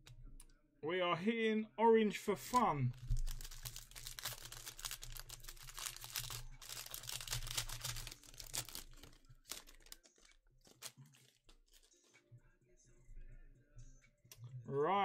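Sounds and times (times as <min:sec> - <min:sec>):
plastic and foil crinkling: 0:02.9 - 0:12.2.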